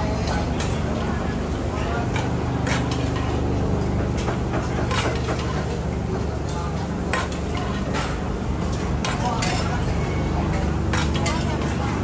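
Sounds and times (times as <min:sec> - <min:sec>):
low mechanical hum: 0:00.0 - 0:12.0
kitchen utensils and pots clattering: 0:02.2 - 0:03.4, 0:10.9 - 0:11.8.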